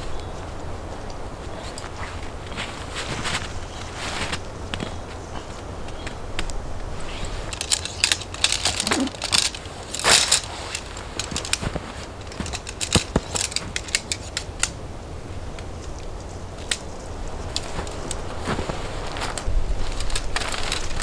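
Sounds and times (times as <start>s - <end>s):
boots crunching through snow: 0.0s - 5.8s, 8.6s - 13.8s, 17.4s - 20.8s
nylon rustling: 0.0s - 21.0s
tent poles clicking: 0.0s - 21.0s.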